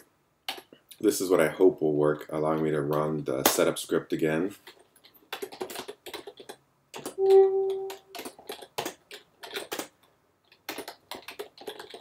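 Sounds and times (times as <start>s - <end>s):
keyboard typing: 5.3s - 9.9s, 10.5s - 12.0s
steady tone: 7.2s - 8.2s.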